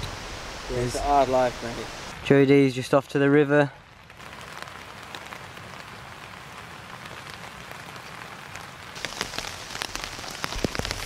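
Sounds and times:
steady rain hiss: 0:00.0 - 0:11.0
ticks of single raindrops: 0:03.8 - 0:11.0.

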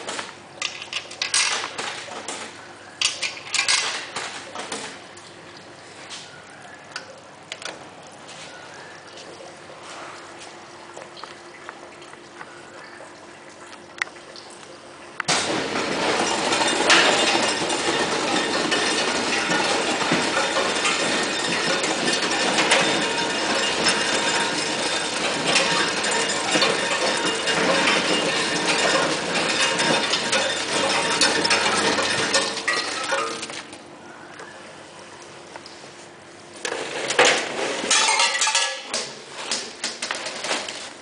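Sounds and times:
faint machine hum: 0:00.0 - 0:41.0
ice cubes clattering into bag: 0:15.3 - 0:33.8, 0:36.8 - 0:40.9.

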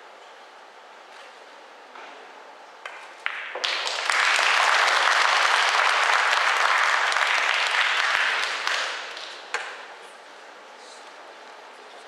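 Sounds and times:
audience applause: 0:03.2 - 0:09.5.

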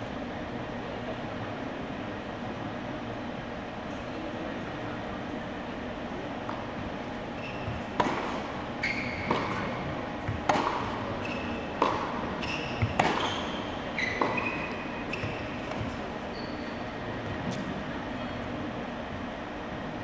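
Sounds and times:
shoes squeaking on court: 0:07.3 - 0:17.9
ball bouncing on court: 0:07.5 - 0:16.0
tennis ball hitting racket: 0:07.8 - 0:08.5, 0:09.2 - 0:16.0.

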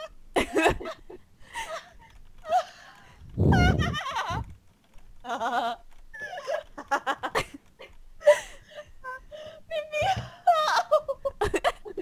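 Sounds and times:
woman laughing: 0:03.4 - 0:04.5, 0:05.3 - 0:09.2, 0:10.1 - 0:12.0.

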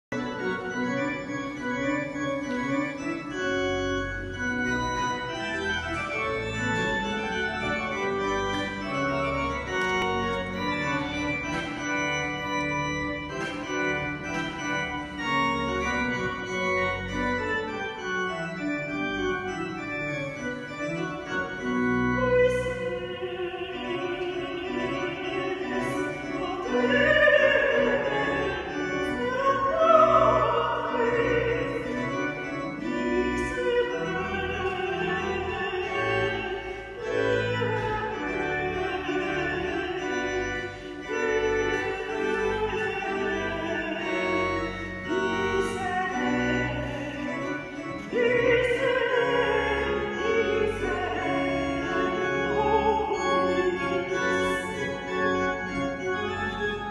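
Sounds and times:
church organ chords: 0:00.0 - 0:56.9
woman singing operatically: 0:22.2 - 0:31.9, 0:48.0 - 0:51.4.

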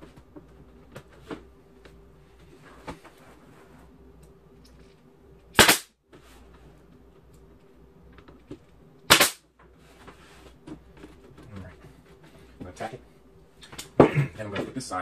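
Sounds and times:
nail gun firing: 0:05.6 - 0:05.9, 0:09.1 - 0:09.4.

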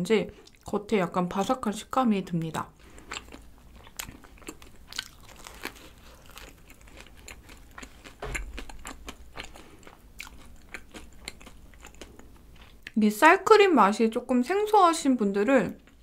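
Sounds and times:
biting and chewing donut: 0:02.8 - 0:13.0
crisp crust crackles: 0:04.1 - 0:09.8.

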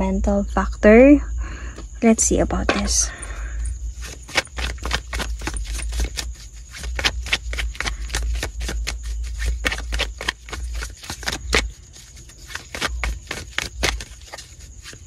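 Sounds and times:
cards being shuffled: 0:03.9 - 0:15.0.

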